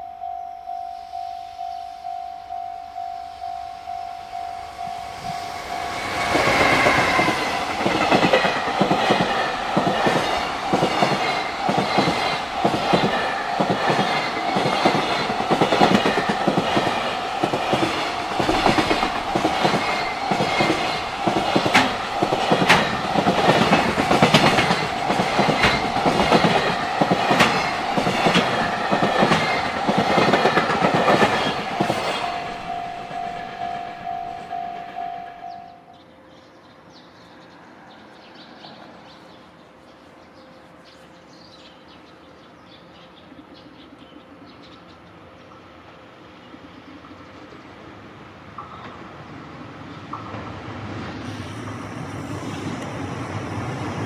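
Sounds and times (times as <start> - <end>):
level crossing bell ringing: 0.0 - 6.0, 32.2 - 35.8
freight train passing: 0.0 - 54.0
wheels clattering over rail joints: 6.1 - 32.8.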